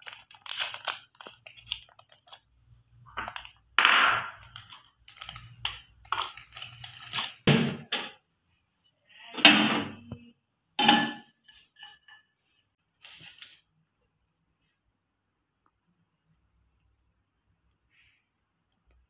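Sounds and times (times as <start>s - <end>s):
rustling and scraping handling: 11.3s - 14.9s.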